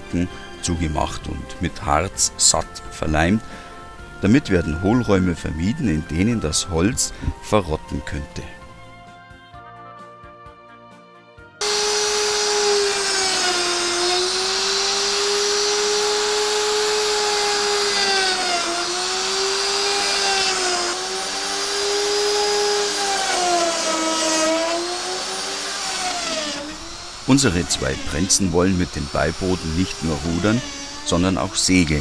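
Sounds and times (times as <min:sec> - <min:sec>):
router whining cutting wood: 0:11.6 - 0:32.0.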